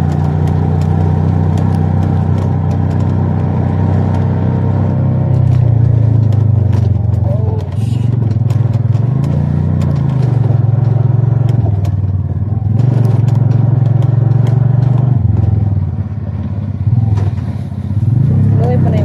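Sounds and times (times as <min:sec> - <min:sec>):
rattles and knocks from bumps: 0:00.0 - 0:17.7
motorcycle engine running: 0:00.0 - 0:19.0.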